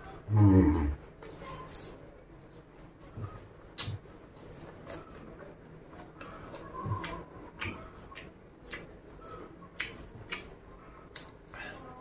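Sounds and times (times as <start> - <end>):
chewing raw leafy vegetables: 3.0 - 12.0
sharp mouth clicks: 7.0 - 9.0, 9.7 - 11.5.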